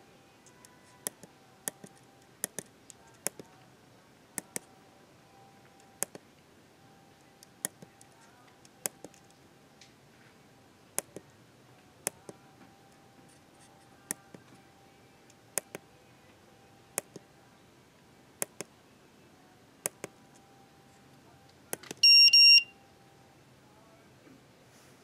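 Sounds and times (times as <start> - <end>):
push buttons clicking: 0.5 - 3.6, 4.4 - 4.7, 7.3 - 9.4, 11.0 - 11.3, 12.0 - 12.4, 15.5 - 15.8, 16.9 - 17.3, 18.4 - 18.7, 19.8 - 20.2
high-pitched double beep: 22.0 - 22.8.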